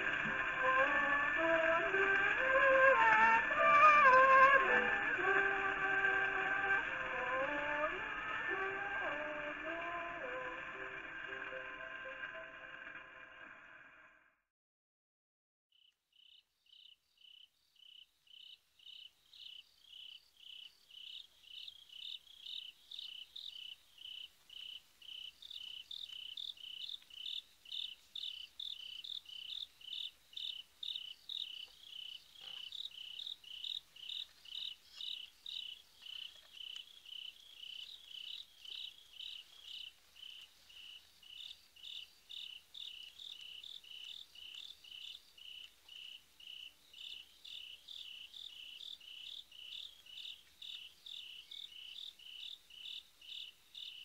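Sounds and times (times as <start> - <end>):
cricket chirping: 15.8 - 54.0.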